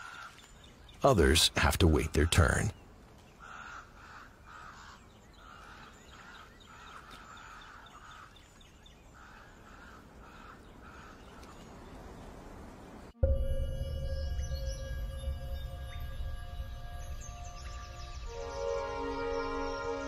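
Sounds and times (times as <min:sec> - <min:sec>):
ravens cawing: 0:03.4 - 0:08.3, 0:09.2 - 0:11.3.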